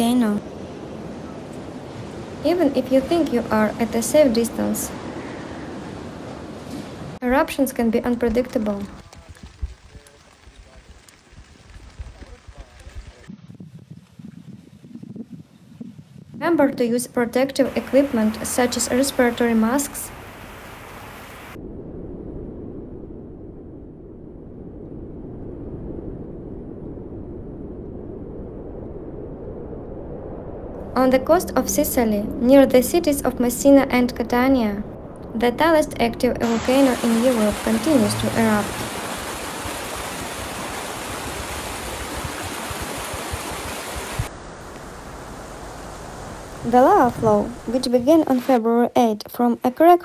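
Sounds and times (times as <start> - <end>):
lava flow rumbling: 0.0 - 15.2, 17.6 - 48.6
lava flow rushing: 8.0 - 13.4, 34.9 - 48.6
high-pitched crackle: 8.1 - 13.3.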